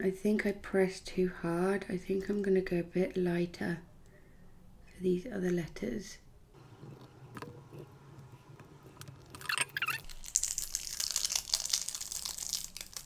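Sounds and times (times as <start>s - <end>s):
foil and tape peeling: 9.2s - 13.0s.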